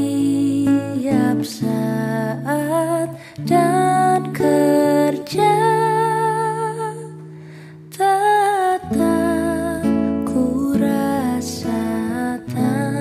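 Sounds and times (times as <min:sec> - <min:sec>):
woman singing a slow hymn: 0:00.0 - 0:07.2, 0:07.9 - 0:13.0
fingerpicked acoustic guitar: 0:00.0 - 0:13.0.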